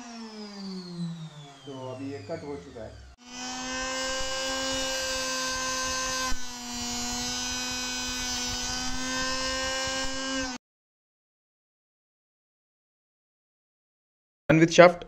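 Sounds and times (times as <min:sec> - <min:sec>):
saw motor whining: 0:00.0 - 0:10.6.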